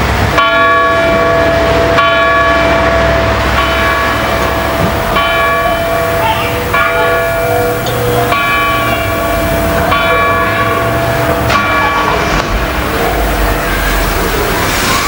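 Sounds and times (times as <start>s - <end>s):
church bell tolling: 0.0s - 15.0s.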